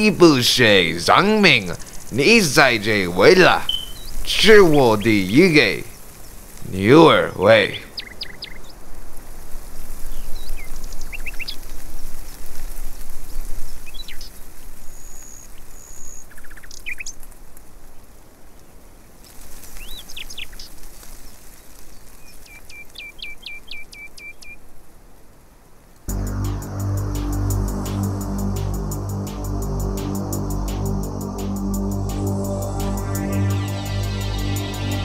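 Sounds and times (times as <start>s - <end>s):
outdoor background noise: 0.0s - 35.0s
small birds chirping: 0.3s - 8.8s, 19.6s - 24.6s.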